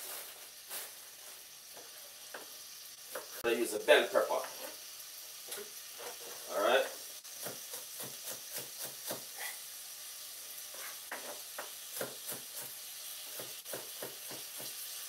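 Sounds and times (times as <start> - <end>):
vegetables sizzling in pot: 0.0 - 15.0
knife chopping on wooden board: 7.3 - 9.3, 11.1 - 12.7, 13.3 - 14.8.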